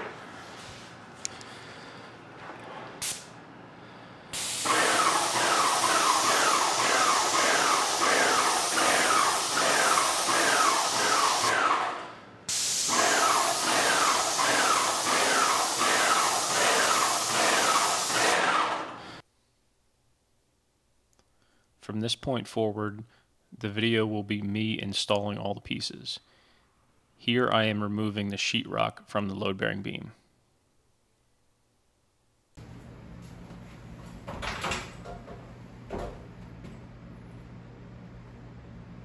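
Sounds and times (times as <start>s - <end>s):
paint sprayer hissing: 4.3s - 19.2s.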